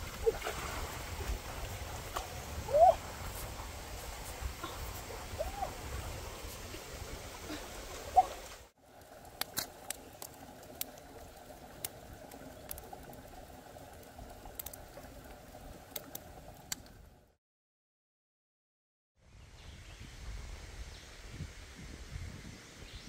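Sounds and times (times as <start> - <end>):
fire crackling and popping: 8.4 - 17.1
fish sizzling over a fire: 8.8 - 15.0.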